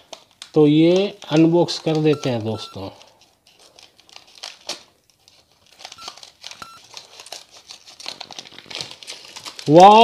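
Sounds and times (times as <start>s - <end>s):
snack packet crinkling: 0.0s - 10.0s.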